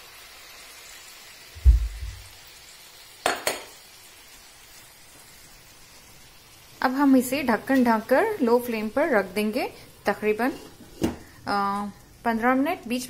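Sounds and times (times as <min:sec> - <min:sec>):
chicken sizzling in frying pan: 0:00.0 - 0:13.0
dull thump: 0:01.6 - 0:02.3.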